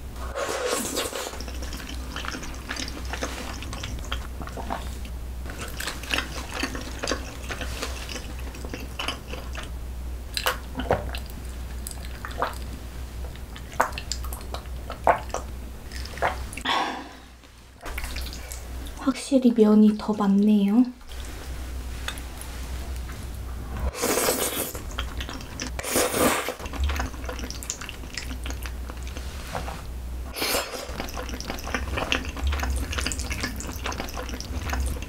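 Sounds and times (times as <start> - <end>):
low steady hum: 0.0 - 35.0
wet chewing and mouth smacks: 0.8 - 9.7, 10.3 - 12.7, 13.3 - 16.6, 17.8 - 19.0, 24.3 - 29.8, 30.6 - 35.0.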